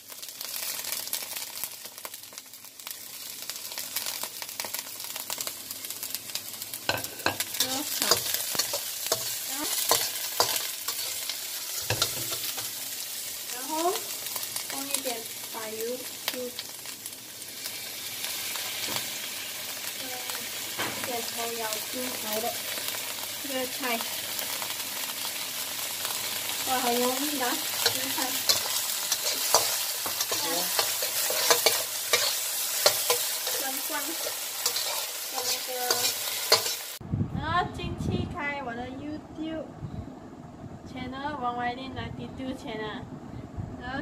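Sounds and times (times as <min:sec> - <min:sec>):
scallions sizzling in hot oil: 0:00.0 - 0:37.0
metal spatula scraping wok: 0:06.9 - 0:12.8, 0:26.7 - 0:37.0.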